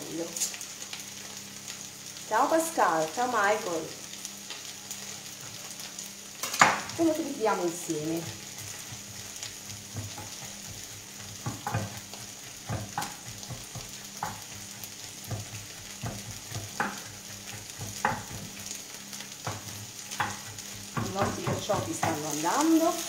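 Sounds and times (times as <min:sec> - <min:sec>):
vegetables sizzling in oil: 0:00.0 - 0:23.0
knife chopping on wooden board: 0:15.2 - 0:18.5, 0:19.4 - 0:22.3.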